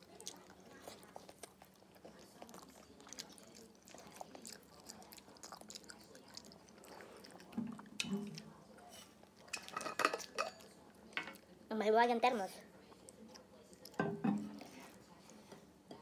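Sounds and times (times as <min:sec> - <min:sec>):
person chewing food: 0:00.0 - 0:09.5, 0:12.9 - 0:15.4.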